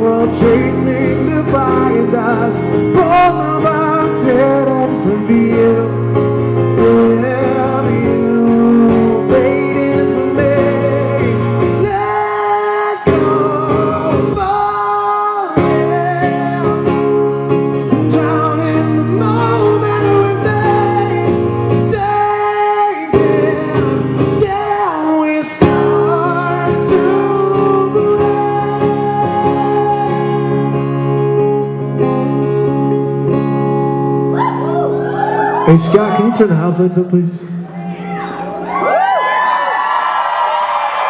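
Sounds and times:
man singing: 0.0s - 31.2s
strummed acoustic guitar: 0.0s - 34.4s.

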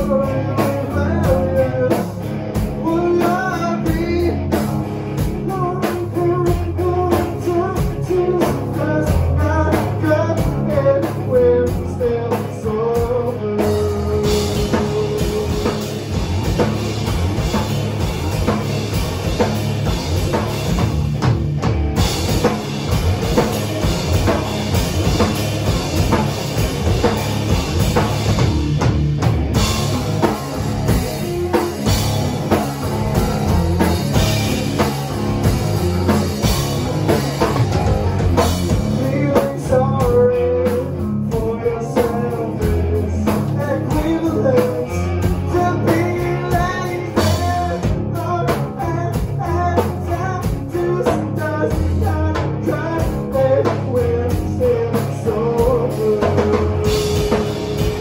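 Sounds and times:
rock band playing: 0.0s - 58.0s
stepping melodic line: 9.2s - 48.4s.

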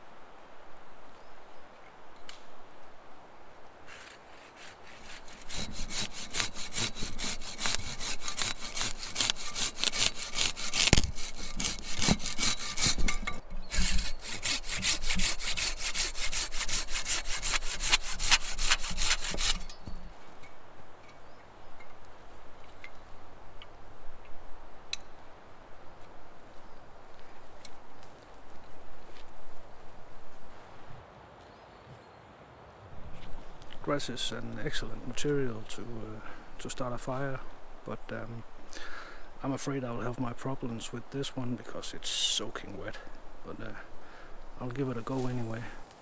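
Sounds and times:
saw cutting branch: 3.9s - 20.0s.

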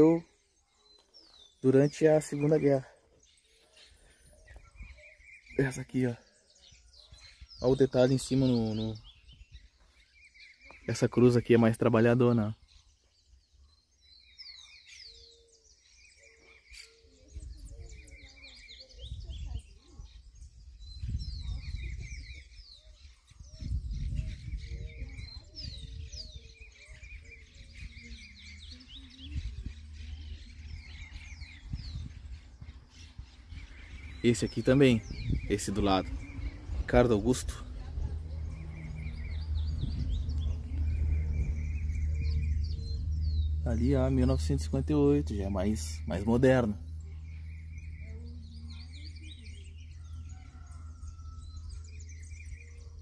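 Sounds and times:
birds singing and chirping: 0.0s - 53.0s
low rumble on microphone: 17.3s - 53.0s.

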